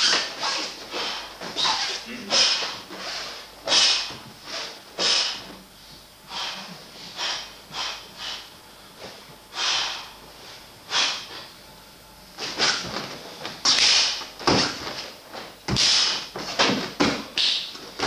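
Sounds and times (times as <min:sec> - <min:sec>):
person exhaling forcefully: 0:03.7 - 0:04.2, 0:05.0 - 0:05.5, 0:06.3 - 0:08.5, 0:09.5 - 0:10.2, 0:10.9 - 0:11.4, 0:15.7 - 0:16.3.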